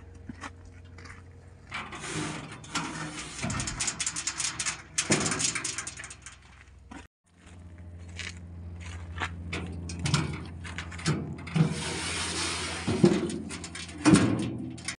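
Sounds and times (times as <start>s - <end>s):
log scraping across steel: 0.7s - 7.1s, 9.4s - 14.1s.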